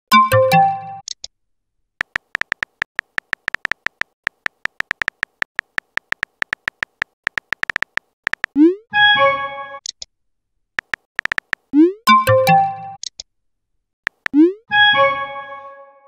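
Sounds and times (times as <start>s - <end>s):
phone keyboard clicks: 2.0s - 8.6s, 10.8s - 11.7s, 14.1s - 14.4s.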